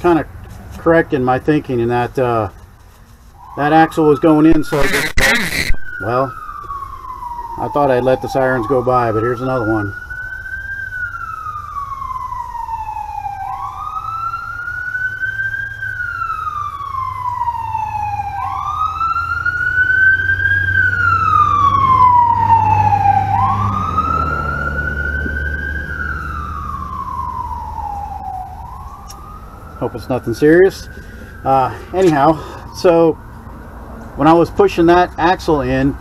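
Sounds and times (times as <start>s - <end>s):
emergency siren wailing: 3.3s - 36.0s
low vehicle rumble: 10.2s - 34.2s.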